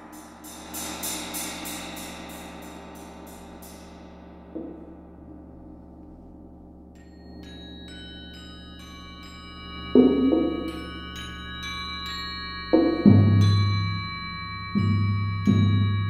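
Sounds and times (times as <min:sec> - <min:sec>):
bright pitched mallet notes: 0:07.0 - 0:16.0.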